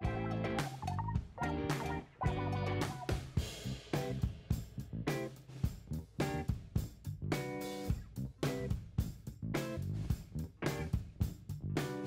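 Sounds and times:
guitar chords over a beat: 0.0s - 4.1s.

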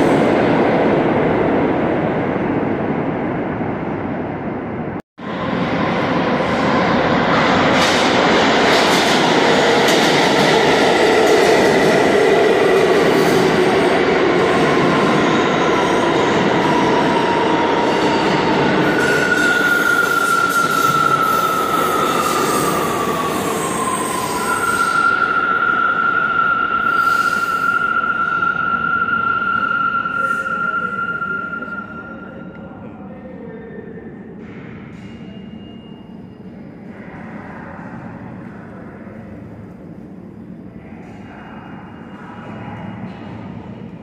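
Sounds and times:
subway train rumble: 0.0s - 44.0s
high metallic squeal: 17.9s - 32.5s.

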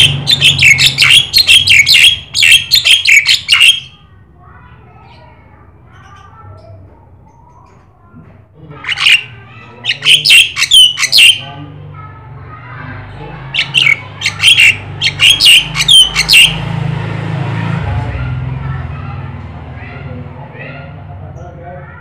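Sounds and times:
myna chattering calls: 0.0s - 4.0s, 8.7s - 11.6s, 12.7s - 16.8s.

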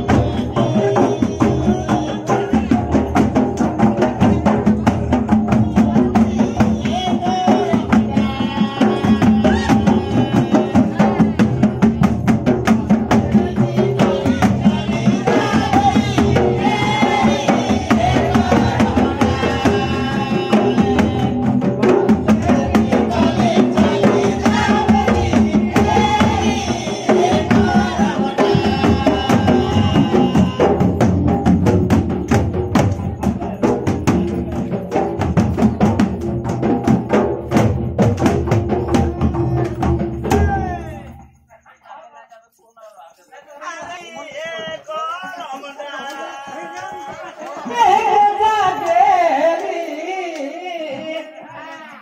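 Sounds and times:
chorus of voices singing: 0.0s - 35.0s, 43.5s - 52.0s
hand drums in fast rhythm: 0.0s - 41.5s.

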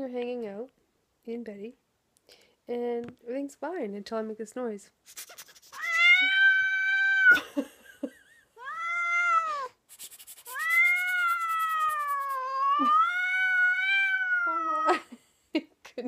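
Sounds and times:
short rasping noise: 5.1s - 6.0s, 9.9s - 12.4s
cat yowling: 5.7s - 7.4s, 8.6s - 9.8s, 10.4s - 15.0s.

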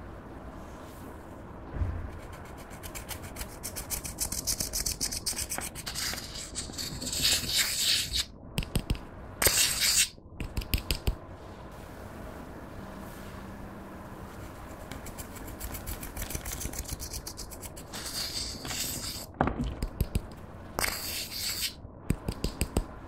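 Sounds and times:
stick scraping eyeshadow powder: 2.2s - 8.3s, 9.4s - 10.1s, 14.8s - 19.3s, 20.8s - 21.8s.

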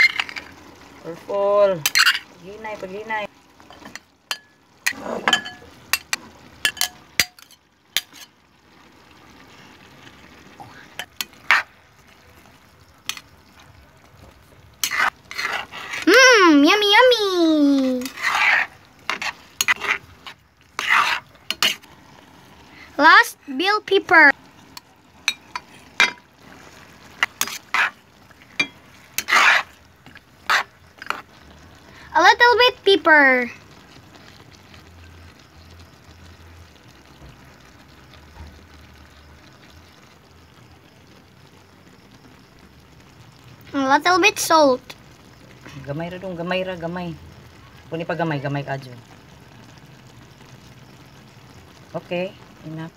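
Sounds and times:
spatula scraping frying pan: 0.0s - 0.6s, 1.8s - 2.3s, 3.6s - 8.4s, 10.9s - 11.8s, 14.7s - 21.9s, 24.7s - 31.4s
vegetables sizzling in frying pan: 0.0s - 52.9s.

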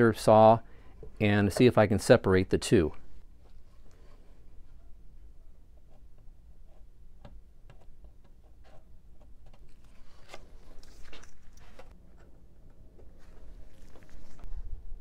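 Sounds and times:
pencil scratching on wood: 7.7s - 9.6s.

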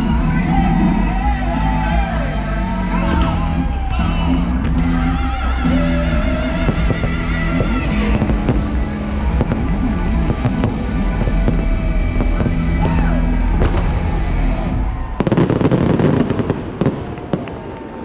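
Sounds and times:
loud show music: 0.0s - 16.9s
fireworks bangs and pops: 5.8s - 18.0s.

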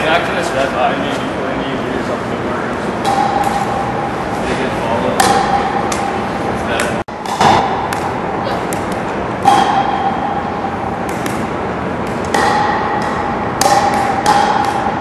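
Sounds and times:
balls bouncing: 3.0s - 15.0s
paddles striking plastic balls: 11.0s - 15.0s.

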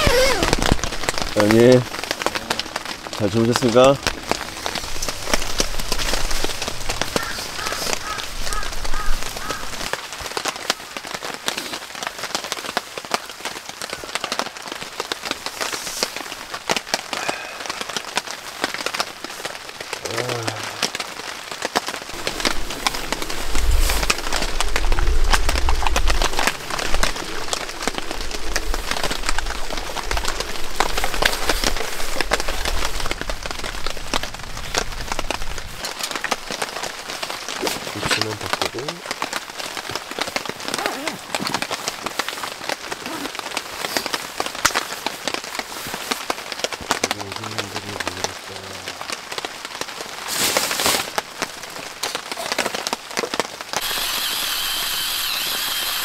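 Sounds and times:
bird calling: 0.0s - 0.7s, 7.0s - 9.8s, 53.8s - 56.0s
heavy rain falling: 0.0s - 56.0s
raindrops pattering on surface: 0.0s - 56.0s
low rumble: 22.2s - 34.5s.

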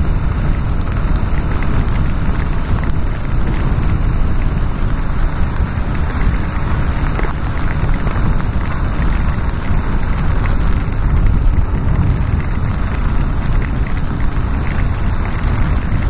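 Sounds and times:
motorcycle engine rumble: 0.0s - 16.0s
tyre hiss on wet road: 0.0s - 16.0s
wind rush: 0.0s - 16.0s.

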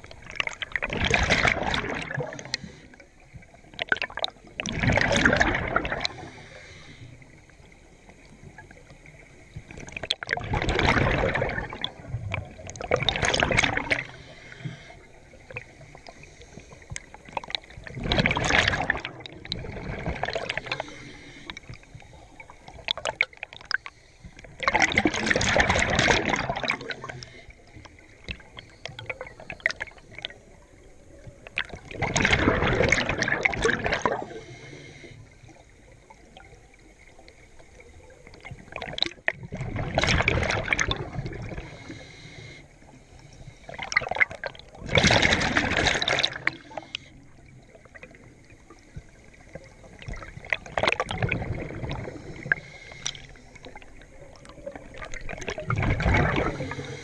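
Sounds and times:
diver exhaling bubbles underwater: 0.4s - 2.8s, 3.8s - 6.9s, 10.0s - 14.8s, 17.4s - 21.4s, 24.6s - 27.4s, 31.6s - 34.9s, 38.5s - 42.2s, 43.7s - 47.1s, 49.9s - 57.0s.

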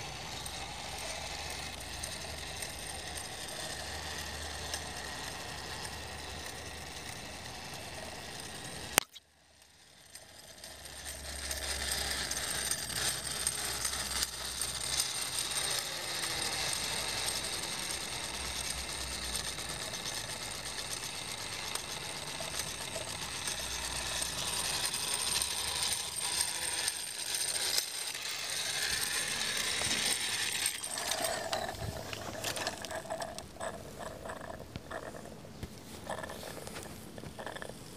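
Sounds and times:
toy steam engine clattering and hissing: 0.0s - 37.9s
sharp click: 9.0s - 9.2s.

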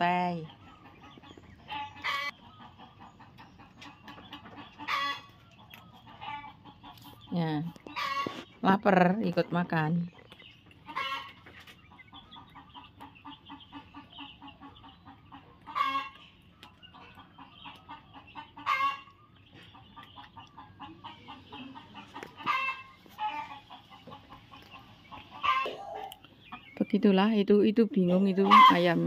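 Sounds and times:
hens clucking softly: 0.3s - 8.6s, 9.4s - 26.9s, 28.0s - 29.0s
loud hen calls: 1.6s - 2.8s, 4.5s - 5.4s, 15.7s - 16.2s, 17.8s - 19.2s, 20.8s - 23.7s, 25.4s - 26.2s, 28.2s - 29.0s.

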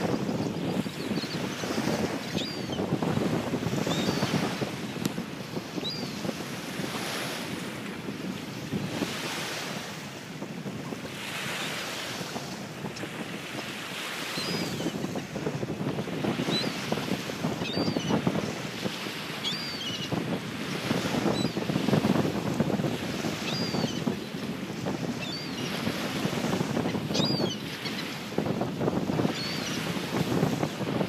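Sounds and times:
wind gusting over microphone: 0.0s - 31.0s
gulls calling: 26.8s - 28.2s.

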